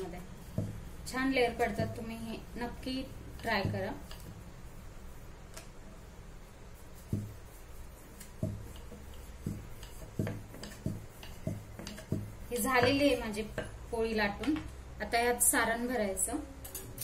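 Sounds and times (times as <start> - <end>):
soft knocks of rolling pin: 0.0 - 2.1, 3.3 - 4.5, 6.9 - 14.8
rolling pin rolling dough: 0.0 - 14.6.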